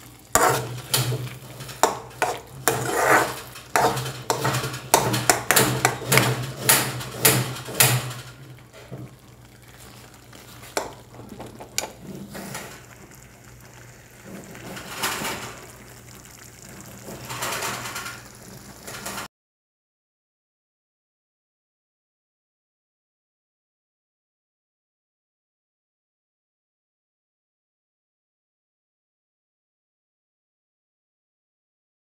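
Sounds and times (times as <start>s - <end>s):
spoon stirring curry in metal pan: 0.3s - 9.1s, 10.6s - 13.0s.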